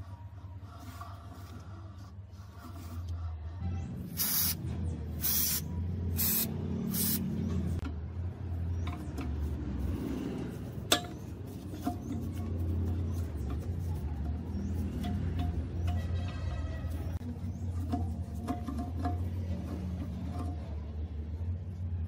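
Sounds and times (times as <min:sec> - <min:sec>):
aerosol can spraying: 0:04.2 - 0:04.6, 0:05.2 - 0:07.2.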